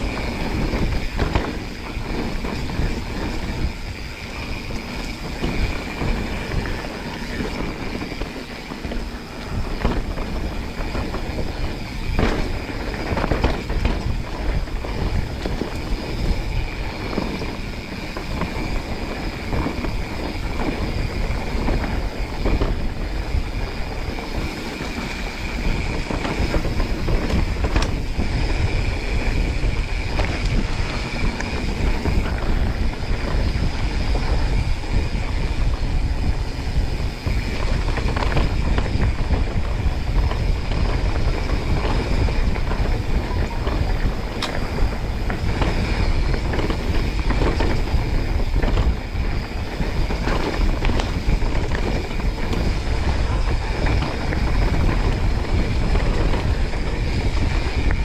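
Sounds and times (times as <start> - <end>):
mountain bike rattling: 0.0 - 58.0
wind buffeting microphone: 0.0 - 58.0.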